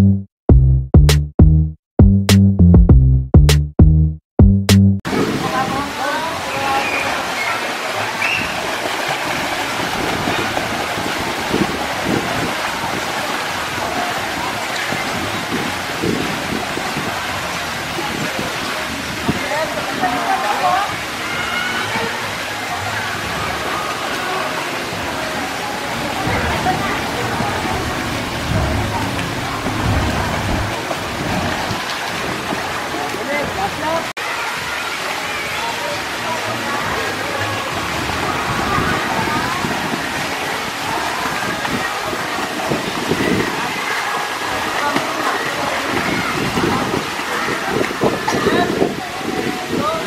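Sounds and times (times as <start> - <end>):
faint voices: 5.1 - 50.0
pool water splashing: 5.1 - 50.0
low rumbling: 26.0 - 31.8.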